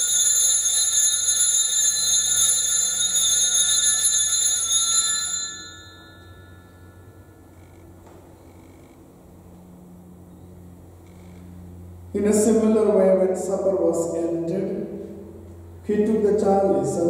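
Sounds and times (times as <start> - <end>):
bells jingling: 0.0 - 7.3.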